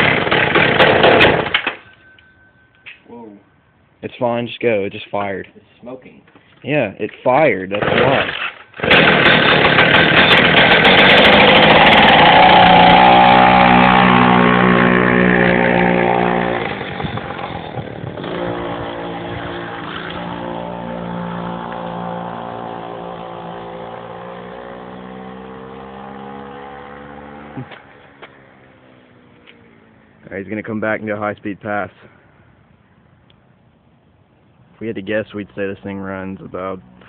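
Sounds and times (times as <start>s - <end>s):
two-stroke scooter engine revving: 0.0s - 1.5s, 7.7s - 28.0s.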